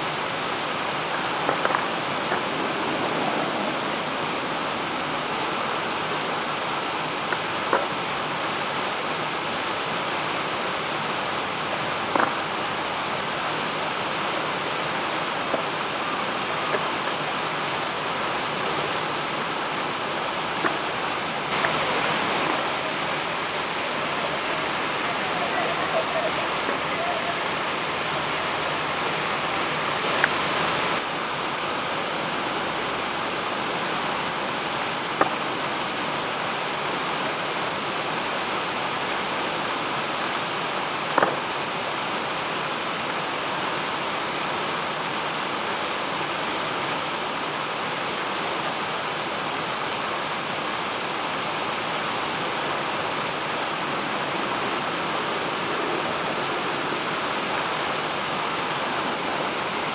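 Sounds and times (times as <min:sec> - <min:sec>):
water splashing over stone cascade: 0:00.0 - 0:59.9.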